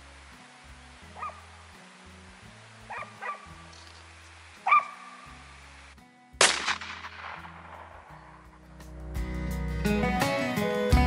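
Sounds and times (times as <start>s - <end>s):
dog barking: 1.2s - 1.4s, 2.9s - 3.5s, 4.6s - 5.1s
shotgun shot with echo: 6.4s - 8.4s.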